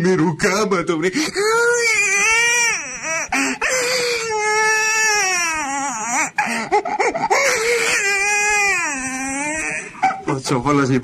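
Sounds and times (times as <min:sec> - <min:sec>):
baby crying: 0:01.2 - 0:10.3.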